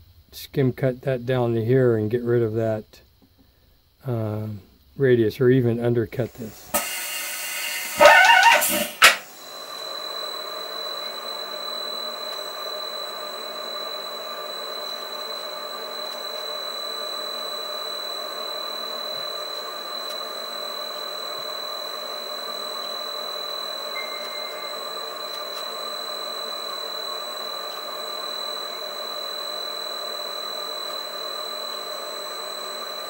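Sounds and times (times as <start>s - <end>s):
lathe spindle humming and whining: 6.2s - 33.0s.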